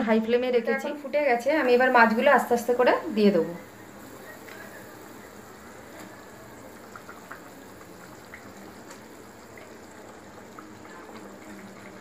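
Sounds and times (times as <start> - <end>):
gravy bubbling with pops: 3.8 - 12.0.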